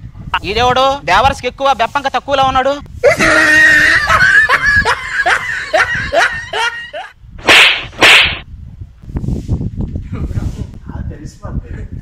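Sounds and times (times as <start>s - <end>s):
young men laughing: 3.0s - 7.1s
hissing whooshes: 7.4s - 8.4s.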